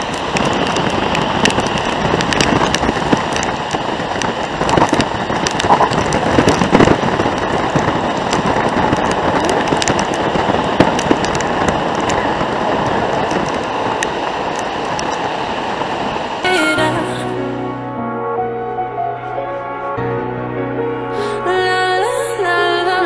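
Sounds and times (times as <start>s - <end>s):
rain hitting car windows and roof: 0.0s - 17.3s
road and tyre noise: 0.0s - 22.4s.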